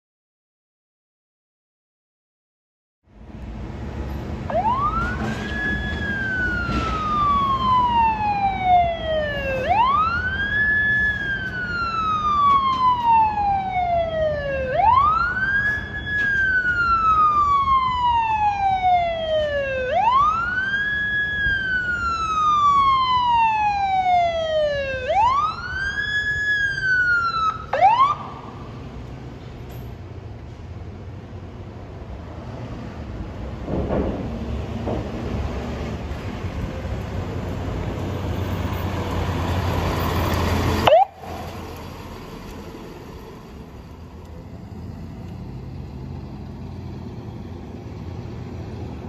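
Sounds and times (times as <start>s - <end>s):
low rumble of traffic: 3.0s - 49.0s
siren wailing: 4.5s - 28.7s, 40.8s - 41.6s.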